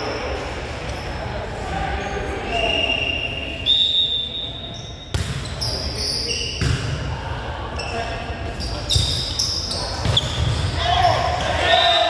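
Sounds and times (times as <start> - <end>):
sneakers squeaking on gym floor: 4.2 - 7.0, 7.8 - 11.6
volleyball hits: 5.1 - 5.6, 6.5 - 7.1.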